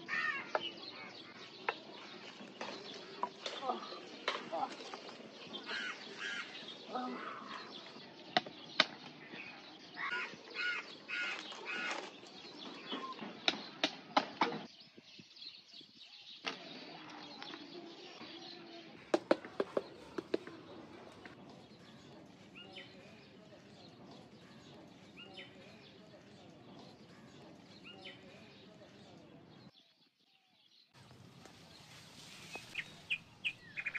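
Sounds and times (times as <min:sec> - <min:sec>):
birds chirping: 0:00.0 - 0:33.9
leaves and branches rustling: 0:01.0 - 0:13.4, 0:31.0 - 0:33.9.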